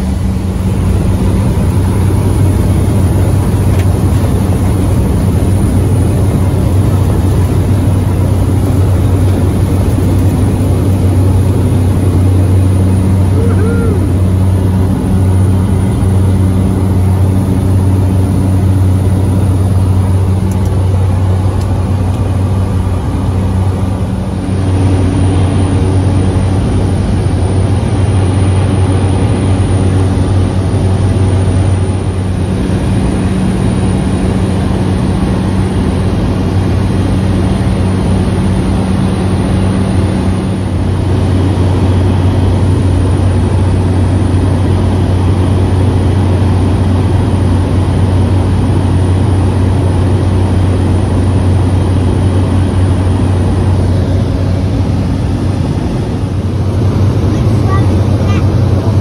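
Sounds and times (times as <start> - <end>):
turboprop engine drone: 0.0 - 59.0.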